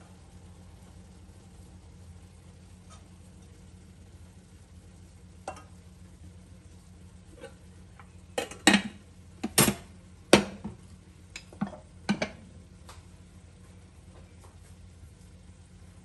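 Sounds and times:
pot clanking on hob: 0:08.4 - 0:10.7, 0:11.4 - 0:12.4.

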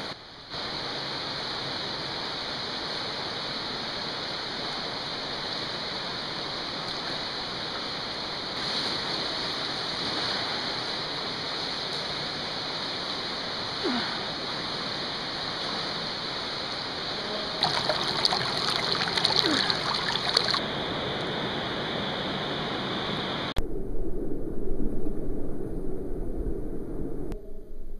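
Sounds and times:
creek water rushing: 0:00.6 - 0:20.7.

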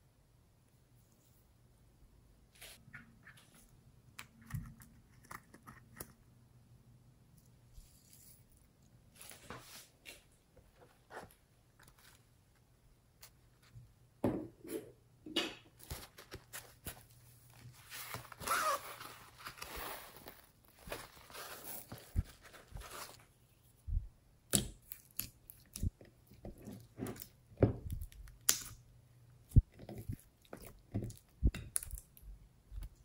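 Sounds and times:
crackly rustling of felt sheet: 0:15.8 - 0:23.7.

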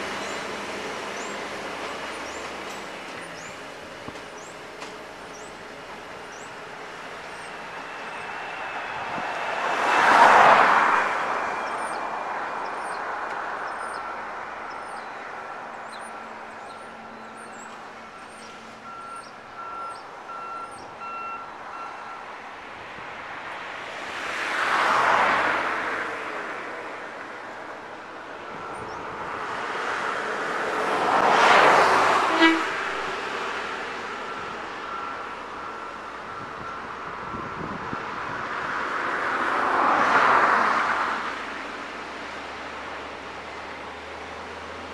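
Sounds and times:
vehicles passing by: 0:00.0 - 0:44.9
short horn toot: 0:32.3 - 0:32.8.

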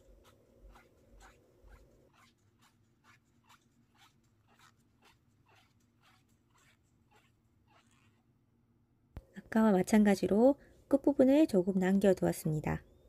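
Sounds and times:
paper rubbing strokes: 0:00.0 - 0:08.3.

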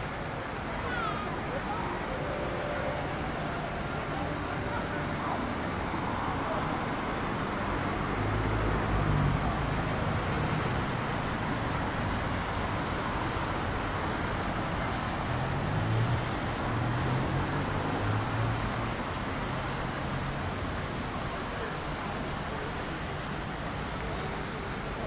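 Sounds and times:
city street traffic: 0:00.0 - 0:25.0
passing vehicle engines rumbling: 0:00.0 - 0:25.0.

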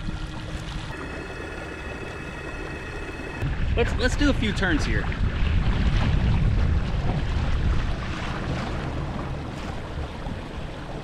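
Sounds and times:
water rushing along hull: 0:00.0 - 0:11.0
wind buffeting microphone: 0:03.4 - 0:11.0.

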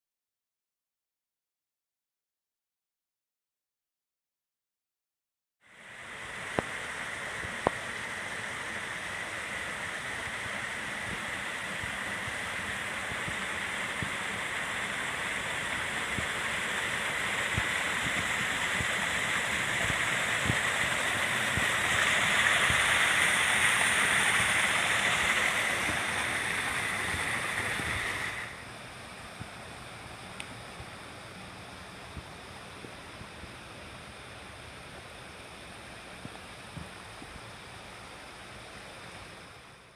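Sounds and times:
water rushing over rocks: 0:06.0 - 0:28.6.

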